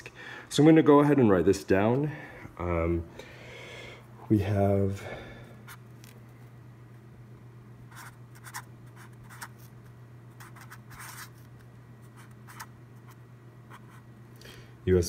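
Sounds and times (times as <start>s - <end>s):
steady low hum: 0.0s - 15.0s
marker writing on paper: 7.9s - 9.7s, 10.4s - 11.5s, 12.2s - 14.0s.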